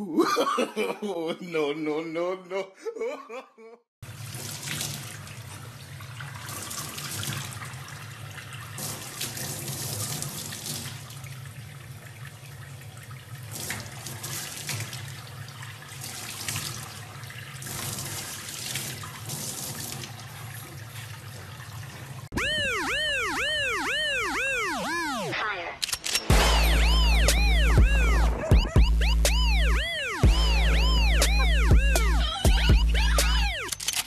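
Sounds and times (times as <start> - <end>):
tap water running into metal sink: 4.0 - 22.3.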